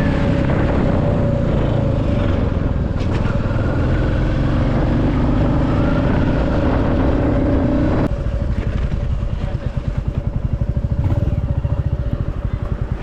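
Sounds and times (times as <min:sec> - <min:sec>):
motorcycle engine running: 0:00.0 - 0:13.0
wind noise: 0:00.0 - 0:13.0.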